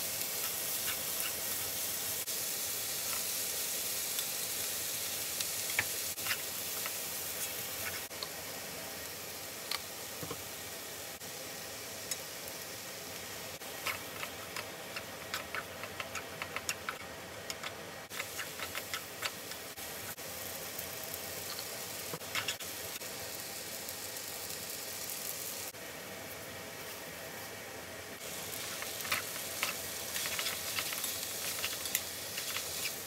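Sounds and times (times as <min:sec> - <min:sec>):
noodles sizzling in a pan: 0:00.0 - 0:33.0
utensils clicking against pan: 0:13.8 - 0:19.7, 0:28.6 - 0:33.0.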